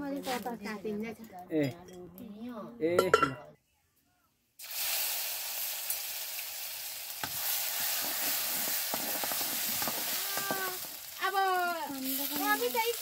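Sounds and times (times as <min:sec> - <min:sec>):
ladle clinking on pan: 0:03.0 - 0:03.4
hot oil sizzling: 0:04.6 - 0:13.0.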